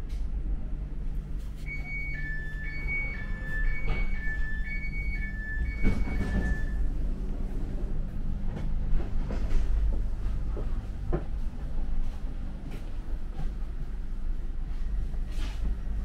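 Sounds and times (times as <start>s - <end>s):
train carriage rumble: 0.0s - 16.0s
two-tone beeping: 1.6s - 6.8s
knocks and clacks from carriage: 5.7s - 6.7s.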